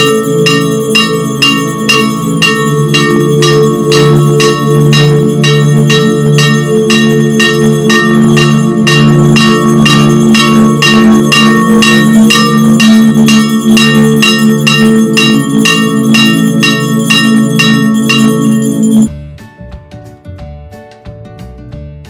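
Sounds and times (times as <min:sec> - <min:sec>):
bells rung in rapid strokes: 0:00.0 - 0:19.1
low sustained tones: 0:00.0 - 0:19.1.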